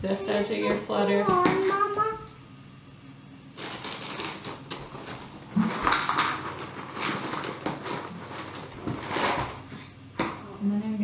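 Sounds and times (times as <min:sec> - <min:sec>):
cracker box crinkling: 0:03.6 - 0:09.6
crackers shaken into plastic bowl: 0:03.6 - 0:09.7.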